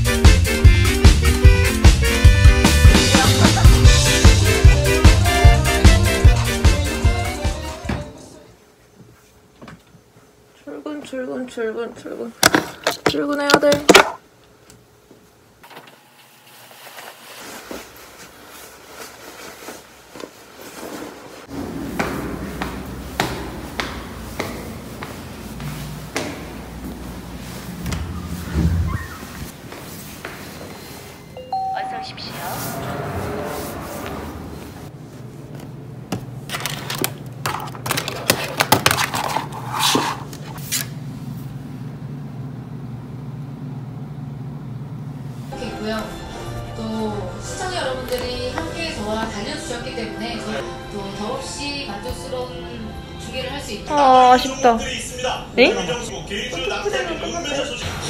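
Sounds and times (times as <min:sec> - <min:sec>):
clothing rustling: 0:16.2 - 0:21.5, 0:22.4 - 0:31.4
steady low hum: 0:17.7 - 0:36.5.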